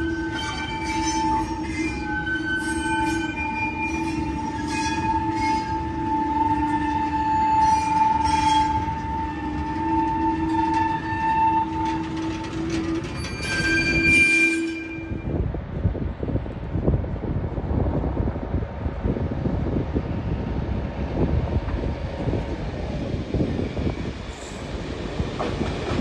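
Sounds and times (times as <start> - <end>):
steel wheels squealing: 0.0 - 15.3
wind noise: 0.0 - 26.0.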